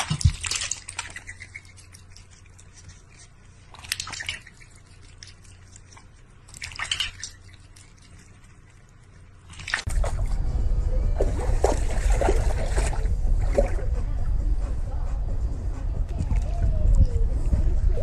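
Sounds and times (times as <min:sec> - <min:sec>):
cat lapping water from metal bowl: 0:00.0 - 0:10.1.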